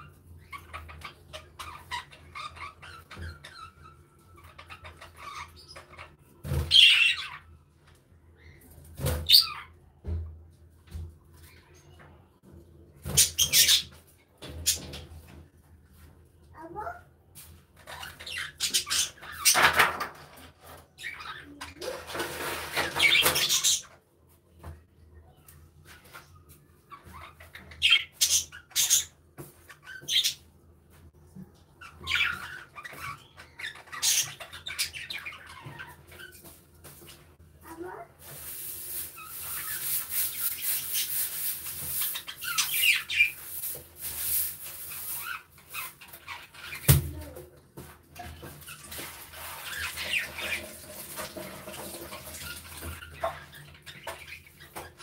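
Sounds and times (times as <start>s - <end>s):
budgerigars chirping and squawking: 0.0s - 7.5s, 8.4s - 9.8s, 13.0s - 15.0s, 17.8s - 20.0s, 20.7s - 24.0s, 26.9s - 30.5s, 31.8s - 37.1s, 38.9s - 43.8s, 44.7s - 47.0s, 49.4s - 50.8s, 51.7s - 55.0s.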